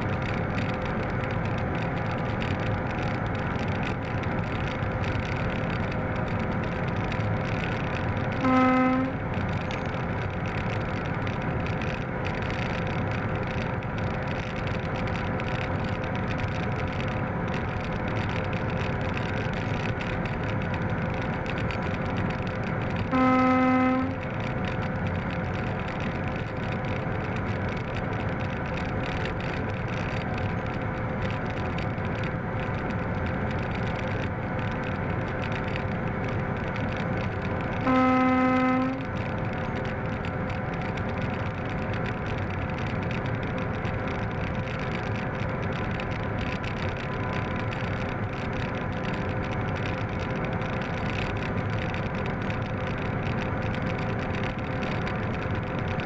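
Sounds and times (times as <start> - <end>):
diesel locomotive engine running: 0.0 - 56.0
wheels on rail: 0.0 - 56.0
locomotive horn blast: 8.4 - 9.2, 23.1 - 24.2, 37.8 - 39.1.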